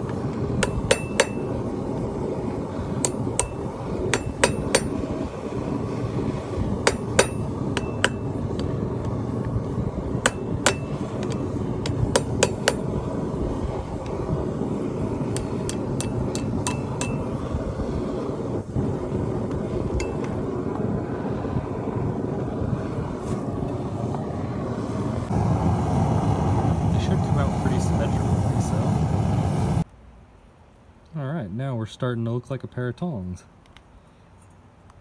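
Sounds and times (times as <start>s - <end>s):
hammer striking steel rod: 0.6s - 1.6s, 3.0s - 5.1s, 6.8s - 8.7s, 10.2s - 13.0s, 15.3s - 17.3s, 20.0s - 20.4s.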